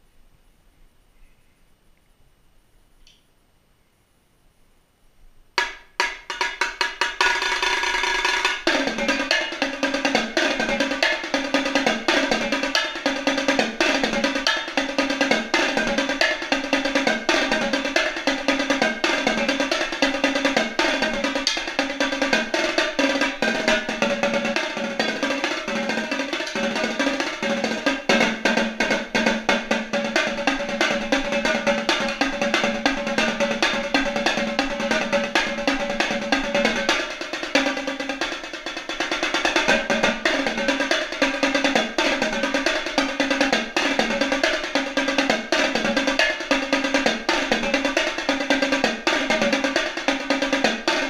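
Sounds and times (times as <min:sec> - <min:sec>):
marching tenor drums: 0:05.6 - 0:51.0.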